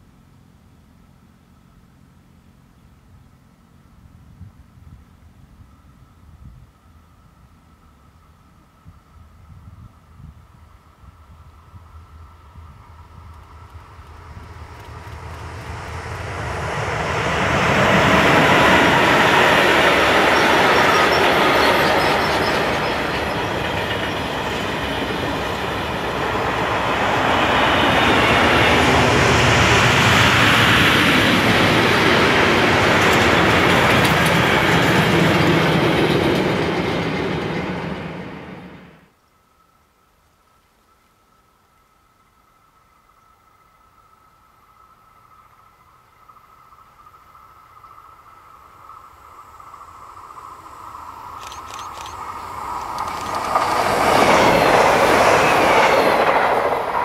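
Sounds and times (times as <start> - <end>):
freight train wheels on rails: 11.1 - 39.1, 44.7 - 57.0.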